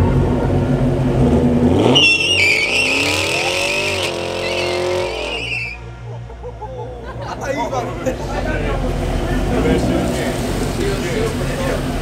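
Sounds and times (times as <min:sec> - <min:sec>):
car engine revving: 0:00.0 - 0:05.9, 0:07.2 - 0:12.0
tyres squealing: 0:01.9 - 0:05.9.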